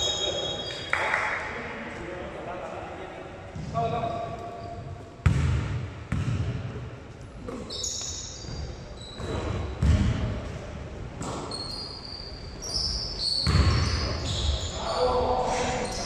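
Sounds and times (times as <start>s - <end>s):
basketball bouncing on court: 5.2s - 6.8s, 9.2s - 10.6s, 13.4s - 14.0s
shoes squeaking: 7.5s - 9.8s, 11.2s - 15.0s.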